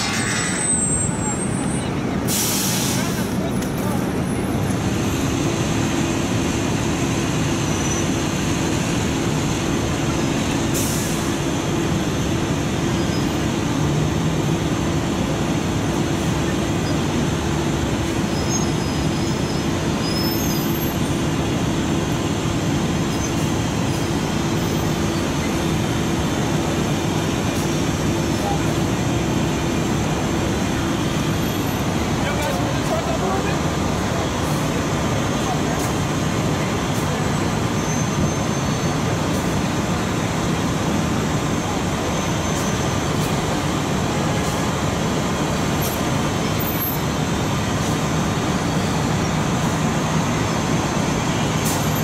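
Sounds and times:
diesel engines rumbling: 0.0 - 52.0
brief air hiss: 2.2 - 3.4.

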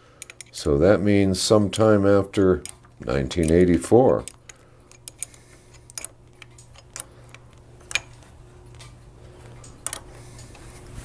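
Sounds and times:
metal parts clicking when handled: 0.2 - 0.6, 2.6 - 9.0, 9.6 - 10.1.

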